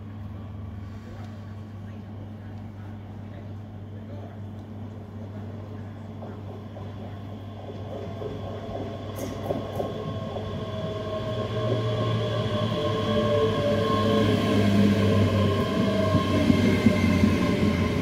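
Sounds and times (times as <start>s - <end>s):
train wheels rumbling on rails: 4.6s - 18.0s
train whine: 5.8s - 18.0s.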